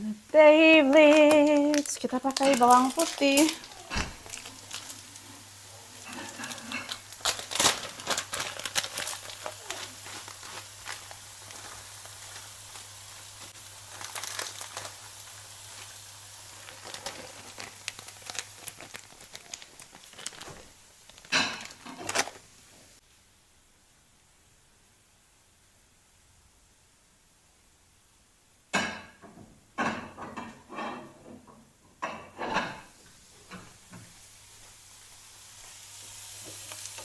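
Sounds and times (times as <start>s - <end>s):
crinkling and rustling: 0.8s - 23.0s.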